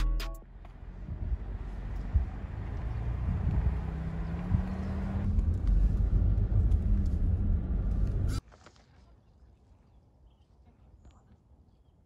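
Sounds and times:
car engine and road noise: 0.0s - 8.4s.

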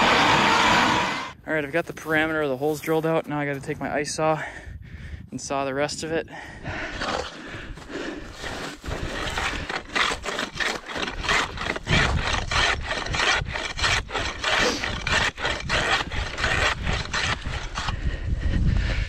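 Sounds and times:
hand saw rasping through ice: 7.0s - 18.1s.

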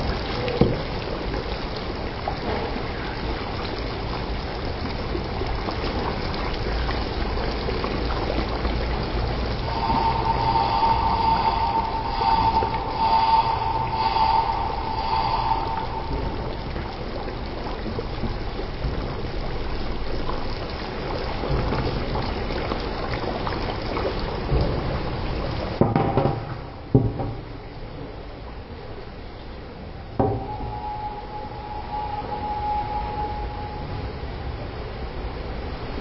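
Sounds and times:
curry bubbling in a pan: 0.1s - 11.4s, 16.7s - 25.8s
steady whine: 9.5s - 18.0s, 30.2s - 35.0s.

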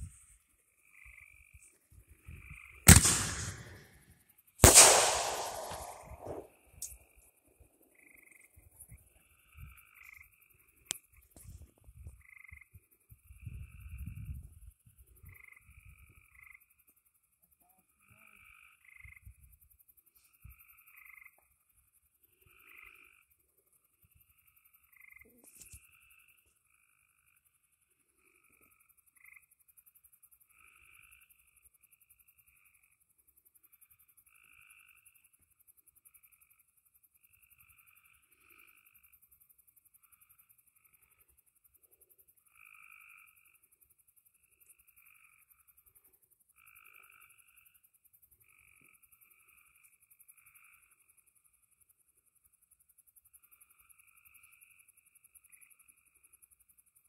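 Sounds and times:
frogs croaking: 0.0s - 3.9s, 7.8s - 11.3s, 12.0s - 57.0s
insect hiss: 0.0s - 57.0s
sharp crack: 2.9s - 4.0s, 4.6s - 6.5s.

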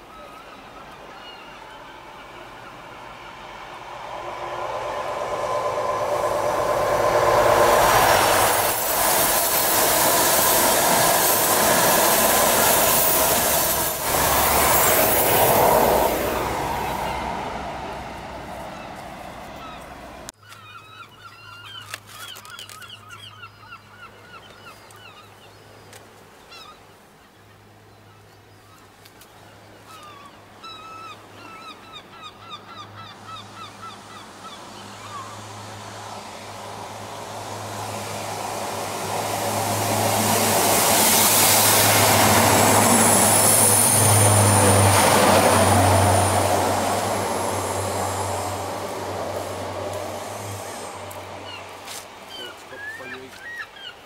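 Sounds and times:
train passing: 0.0s - 20.3s, 30.8s - 53.9s
birds calling: 18.5s - 35.5s, 44.2s - 54.0s.

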